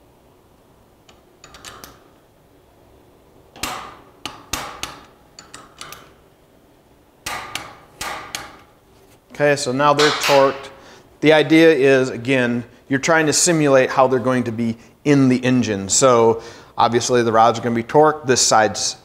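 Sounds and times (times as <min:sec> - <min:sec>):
torque wrench clicking: 0:03.6 - 0:06.2.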